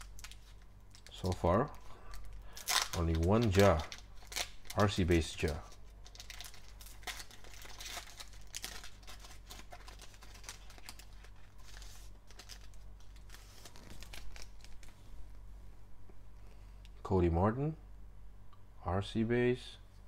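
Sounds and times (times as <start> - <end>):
foil pack crinkling and tearing: 0.0 - 14.9.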